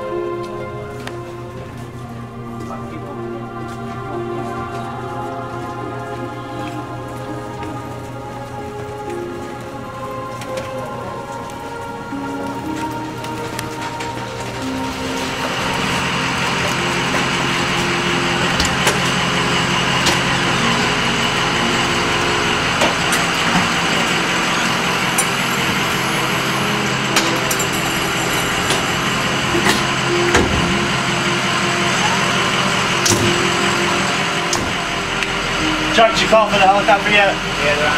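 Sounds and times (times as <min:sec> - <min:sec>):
vehicle engine running: 0:14.4 - 0:37.9.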